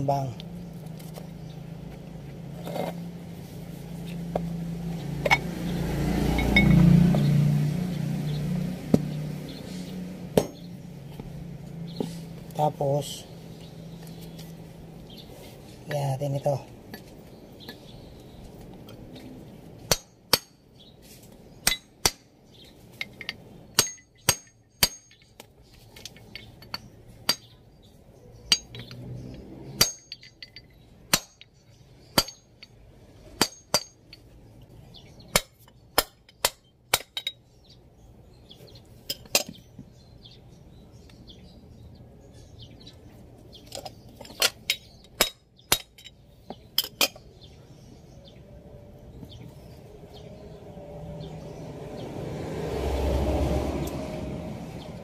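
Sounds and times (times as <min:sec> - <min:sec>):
tool tapping metal: 0:19.9 - 0:20.6, 0:21.6 - 0:22.3, 0:23.0 - 0:27.6, 0:28.5 - 0:31.6, 0:33.4 - 0:34.3, 0:43.7 - 0:47.3.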